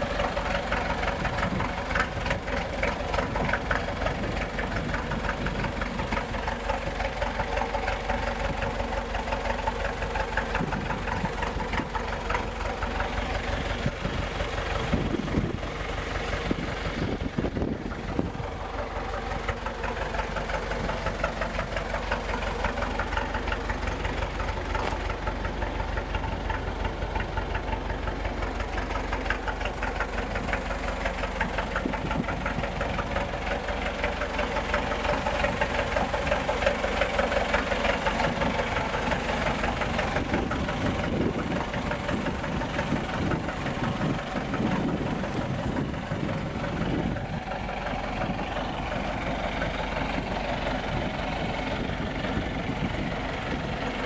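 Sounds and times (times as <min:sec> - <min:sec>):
diesel truck engine idling: 0:00.0 - 0:54.0.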